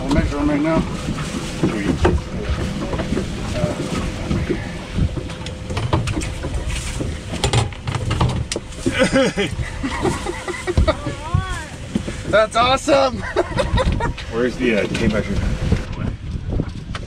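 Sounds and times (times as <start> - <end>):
wind rumbling on microphone: 0.0 - 17.0
knocks and clatter on deck: 0.1 - 8.7.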